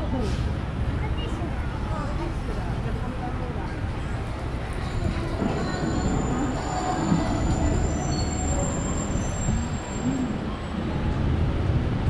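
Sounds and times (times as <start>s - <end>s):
low traffic rumble: 0.0s - 12.0s
faint high squeal: 4.8s - 10.8s.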